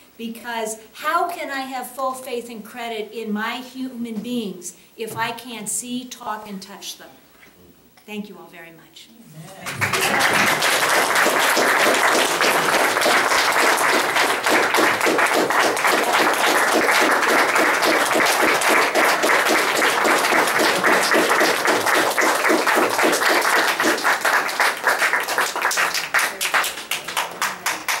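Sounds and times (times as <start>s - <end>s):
audience applauding: 9.5s - 28.0s.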